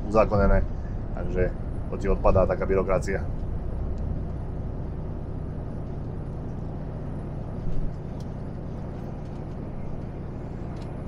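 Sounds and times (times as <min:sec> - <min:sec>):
lorry engine and tyre drone: 0:00.0 - 0:11.0.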